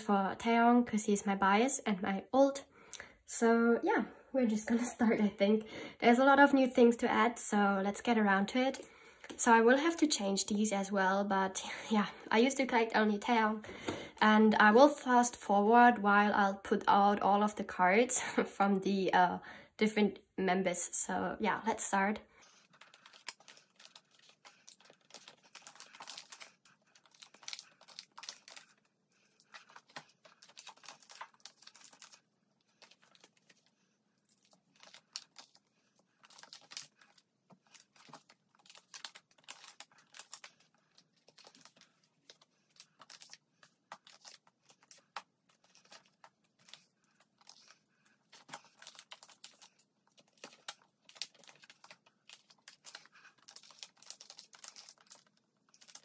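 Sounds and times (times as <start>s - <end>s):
plastic sleeves crinkling: 21.5s - 56.0s.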